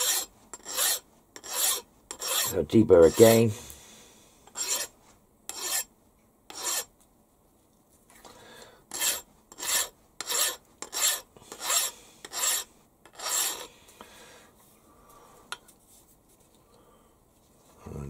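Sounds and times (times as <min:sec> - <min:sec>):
file strokes on metal: 0:00.0 - 0:03.5, 0:04.5 - 0:05.9, 0:06.5 - 0:06.9, 0:08.9 - 0:13.7.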